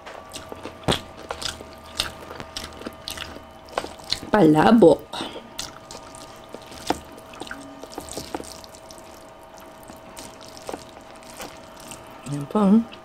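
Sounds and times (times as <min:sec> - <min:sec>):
fork stirring wet noodles: 0:05.6 - 0:12.1.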